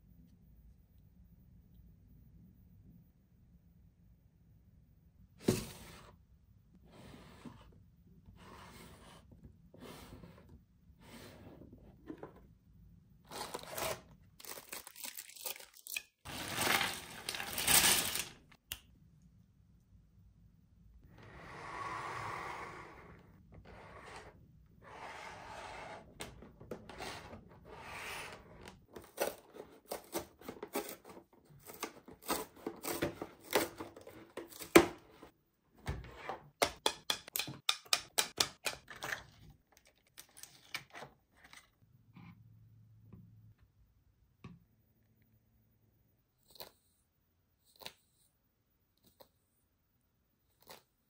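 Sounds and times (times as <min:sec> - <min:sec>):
packaging rustling: 0:13.4 - 0:18.5.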